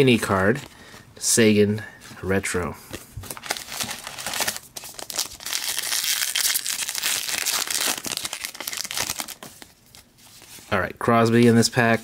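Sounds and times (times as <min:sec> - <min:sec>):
wrapper crinkling and tearing: 0:03.3 - 0:10.1.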